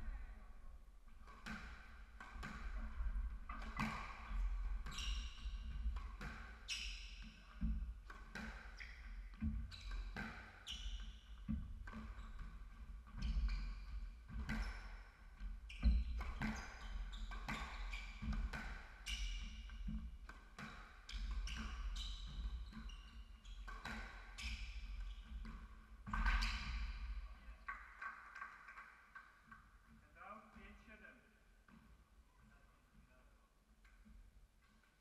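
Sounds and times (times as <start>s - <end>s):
squash ball hitting rackets and walls: 1.2s - 10.7s, 14.3s - 22.9s, 23.6s - 29.7s
shoes squeaking on wooden floor: 3.4s - 7.0s, 20.6s - 27.8s.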